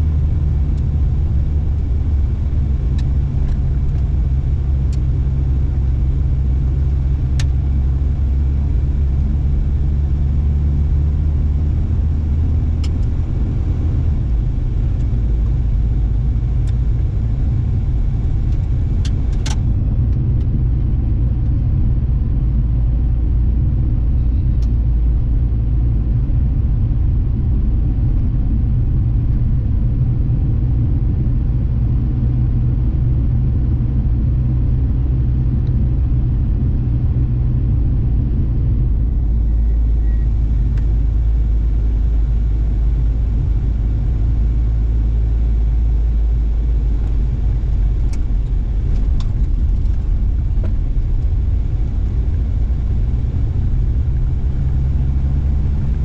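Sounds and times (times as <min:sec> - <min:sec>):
car driving on dirt road: 0:00.0 - 0:56.0.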